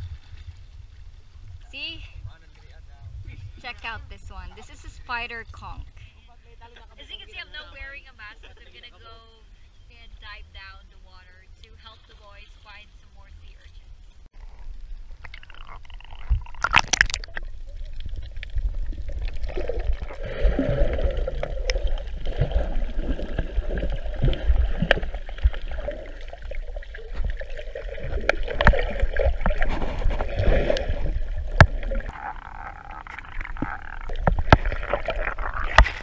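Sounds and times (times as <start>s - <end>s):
water sloshing underwater: 0.0s - 4.9s, 11.1s - 36.0s
water splash: 15.0s - 36.0s.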